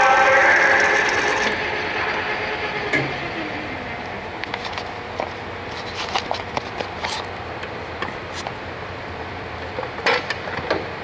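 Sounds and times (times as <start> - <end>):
lathe spindle winding down: 0.0 - 5.9
steady low hum: 0.0 - 11.0.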